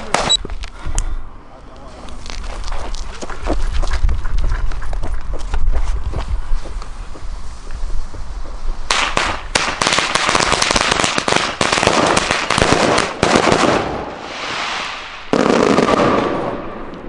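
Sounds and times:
firecrackers rapid sharp bangs: 8.9 - 17.0.

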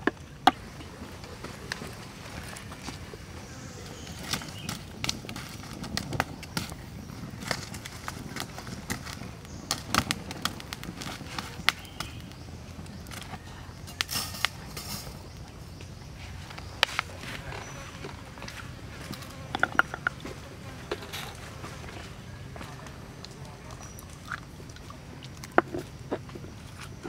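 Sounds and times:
wood fire crackling and popping: 0.0 - 27.0
wire grill grate set down: 13.9 - 15.2
sticks knocking: 19.5 - 20.3.

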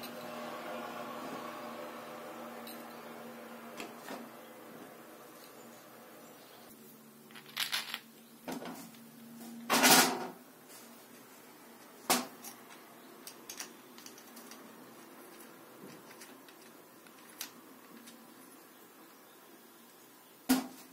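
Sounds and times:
plastic parts clattering on metal: 7.3 - 8.8, 13.3 - 18.2.

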